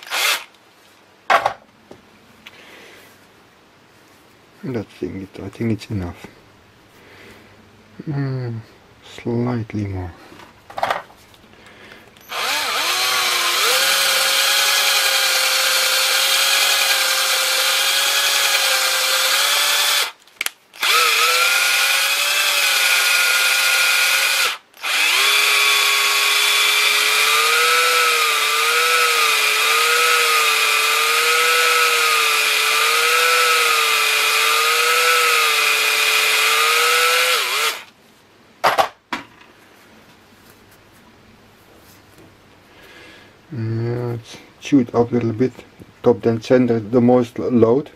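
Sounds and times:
rotary tool grinding whine: 0:00.0 - 0:00.5, 0:12.2 - 0:20.2, 0:20.8 - 0:37.9.

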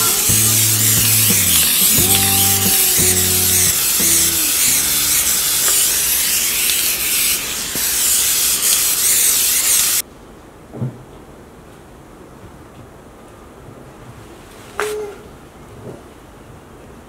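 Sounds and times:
spray paint can hissing: 0:00.0 - 0:10.0.

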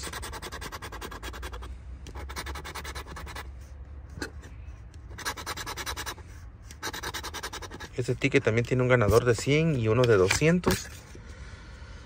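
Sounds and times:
scratch-off ticket scraping: 0:00.0 - 0:03.5, 0:05.1 - 0:08.2.

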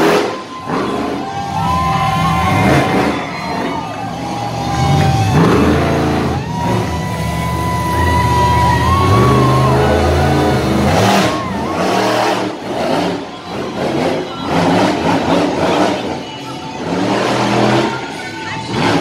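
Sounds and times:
monster truck engine revving: 0:00.0 - 0:19.0.

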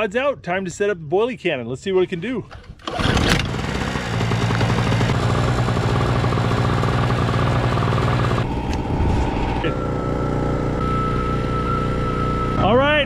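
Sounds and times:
portable generator running: 0:02.5 - 0:12.7
steady whine: 0:07.1 - 0:13.0.

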